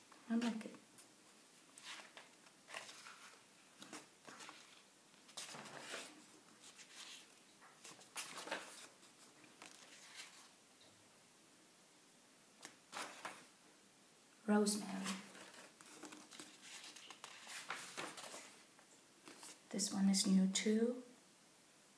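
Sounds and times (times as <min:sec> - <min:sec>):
book pages turning: 0:01.8 - 0:10.5, 0:12.6 - 0:13.5, 0:14.8 - 0:18.6, 0:19.2 - 0:19.7.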